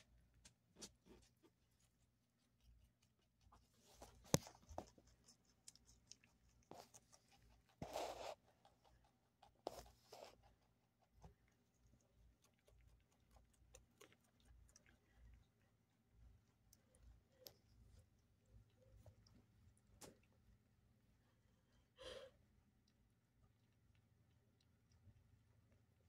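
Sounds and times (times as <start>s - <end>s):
rabbit chewing: 0.0s - 26.0s.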